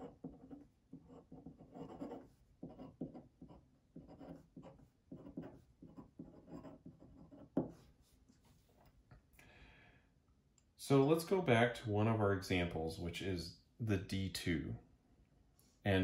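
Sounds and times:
pen scratching on paper: 0.0s - 8.8s.

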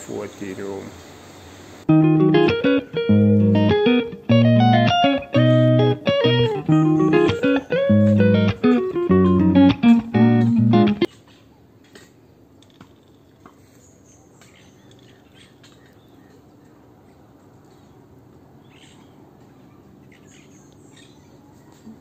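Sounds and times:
guitar music: 1.9s - 11.1s
birds chirping: 2.1s - 11.1s, 13.6s - 22.0s.

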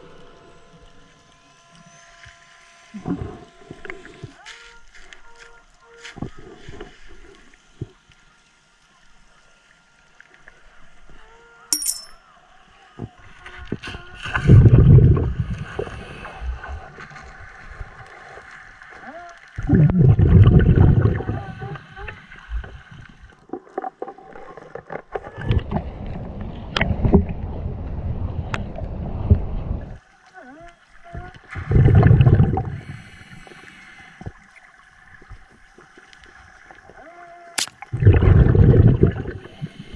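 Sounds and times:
underwater exhaled bubbles: 13.6s - 39.9s.

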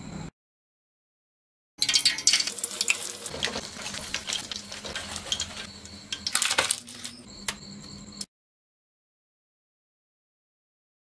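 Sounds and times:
spoon and strainer clinking on pot: 1.8s - 7.2s
eggs deep-frying in oil: 1.8s - 7.3s.

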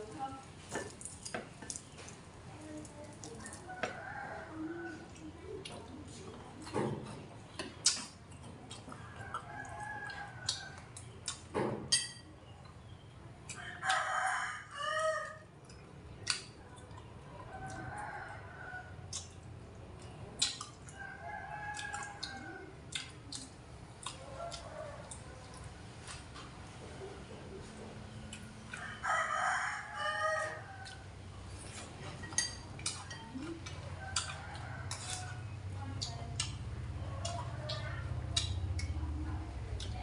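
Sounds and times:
chopsticks clicking on bowls: 20.0s - 21.0s, 31.7s - 39.0s
rooster crowing: 28.8s - 31.0s.

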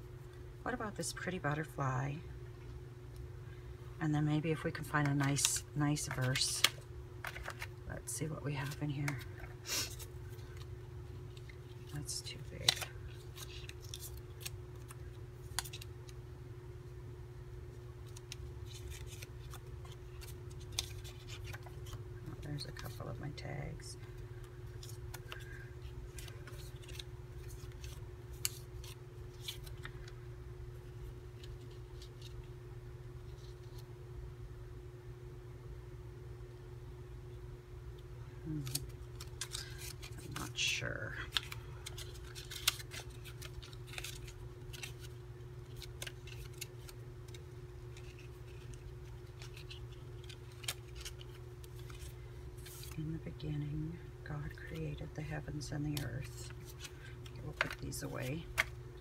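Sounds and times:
faint steady hum: 0.0s - 59.0s
paper cards rustling: 4.6s - 16.2s, 18.0s - 32.5s, 38.5s - 53.4s, 54.4s - 58.8s.

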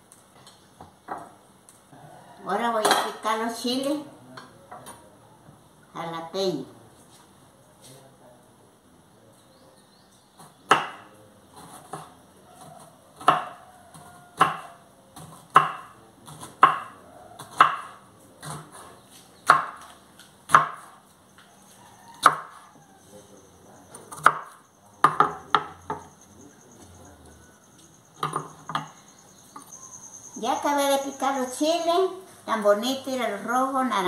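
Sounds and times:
knife chopping on wooden board: 10.4s - 21.0s, 22.2s - 22.6s, 24.1s - 26.1s.

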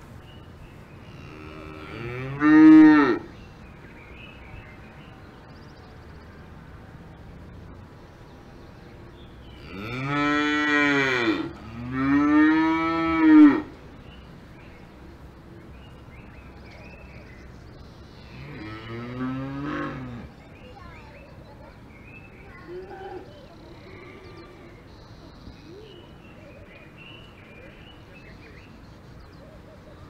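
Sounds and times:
cattle mooing: 1.2s - 3.3s, 9.6s - 13.7s.

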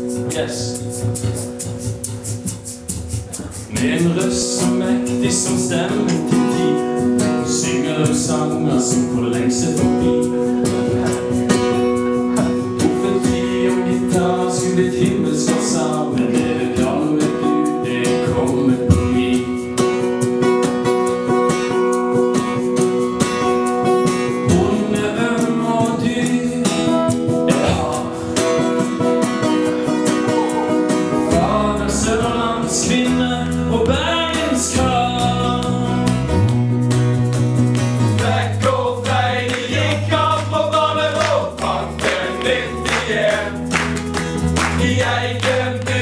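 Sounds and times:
strummed acoustic guitar: 0.0s - 46.0s
man singing into microphone: 3.7s - 11.4s, 12.2s - 19.8s, 24.4s - 28.8s, 30.2s - 36.3s, 38.1s - 43.8s, 44.7s - 46.0s
electric bass: 27.2s - 46.0s.

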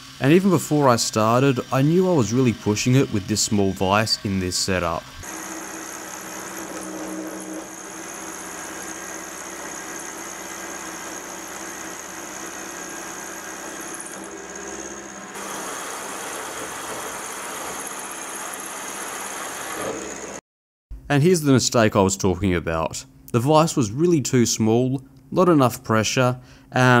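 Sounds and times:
end mill cutting metal: 0.0s - 20.4s
milling machine motor whine: 0.0s - 20.4s.

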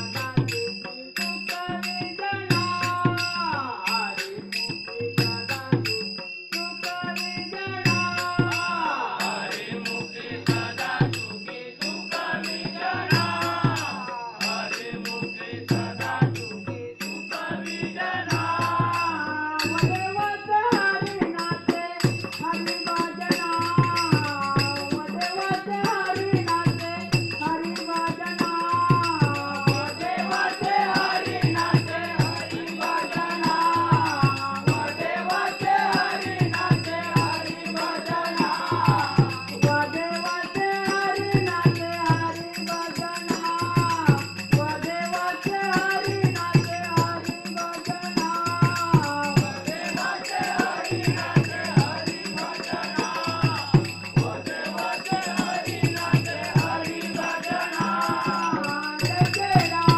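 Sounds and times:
men singing devotional song: 0.0s - 59.9s
hand drum deep beat: 28.5s - 37.7s, 48.3s - 54.5s, 59.0s - 59.9s.

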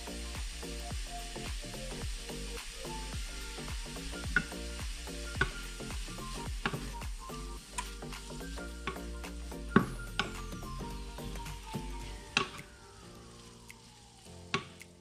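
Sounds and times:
meat sizzling in a frying pan: 0.0s - 14.6s
background music: 0.0s - 15.0s
wooden spoon knocking on pan: 3.7s - 5.6s.

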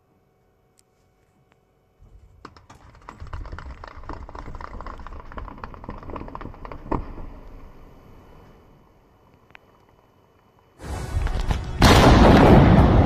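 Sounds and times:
distant blast cracks and thuds: 10.8s - 13.0s.

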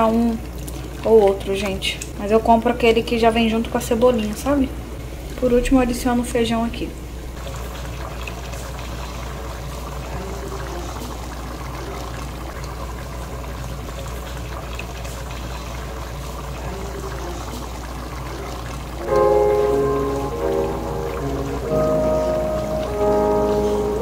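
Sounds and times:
stew bubbling in a pot: 0.0s - 24.0s
low hum: 4.7s - 9.6s, 19.0s - 24.0s.

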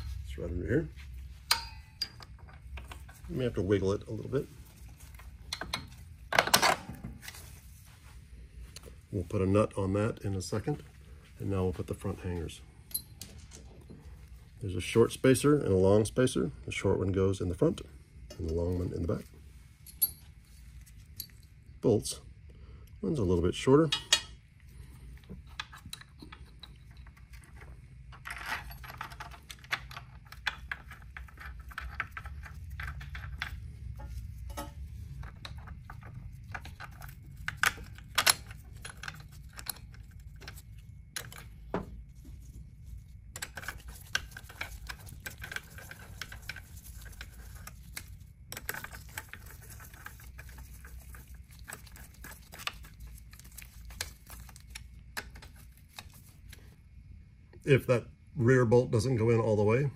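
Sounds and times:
metal clicks of bolts and tools: 1.4s - 3.2s, 5.5s - 6.9s, 12.9s - 13.7s.

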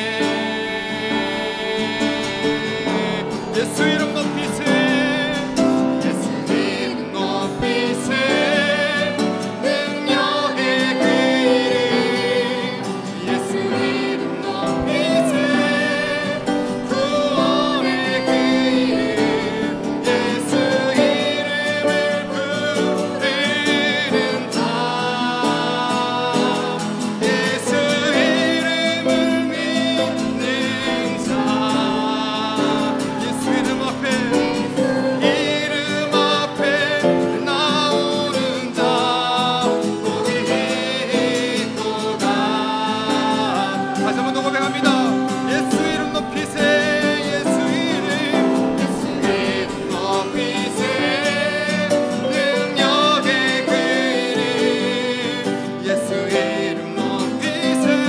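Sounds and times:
acoustic guitar: 0.0s - 58.0s
man singing: 0.0s - 58.0s.

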